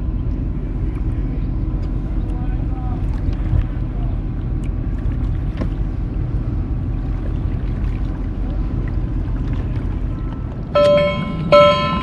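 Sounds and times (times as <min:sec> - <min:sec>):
water rumbling along hull: 0:00.0 - 0:12.0
small splashes and ticks: 0:03.0 - 0:10.7.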